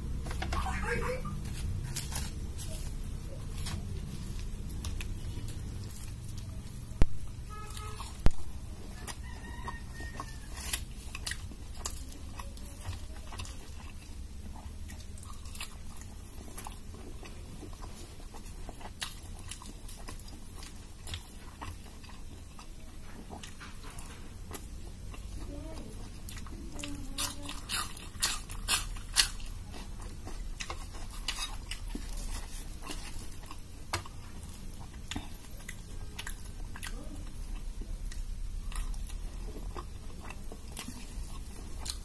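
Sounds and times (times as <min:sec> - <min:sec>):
bread tearing: 0:01.4 - 0:06.7
chewing and wet mouth clicks: 0:07.8 - 0:25.4, 0:26.1 - 0:42.0.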